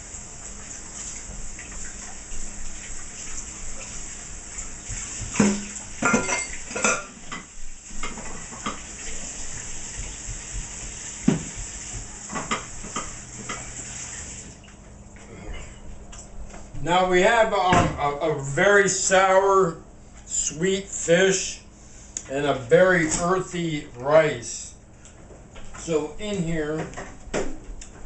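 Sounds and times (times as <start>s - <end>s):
utensils and dishes clattering: 5.3s - 8.9s.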